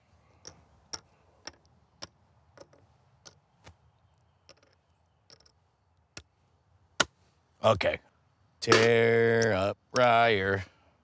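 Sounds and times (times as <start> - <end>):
game pieces clicking into board: 0.4 - 3.4, 4.4 - 5.6.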